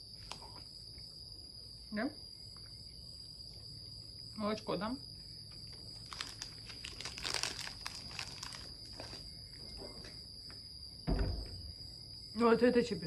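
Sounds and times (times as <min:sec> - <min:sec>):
wrapper crinkling: 0:05.9 - 0:09.2.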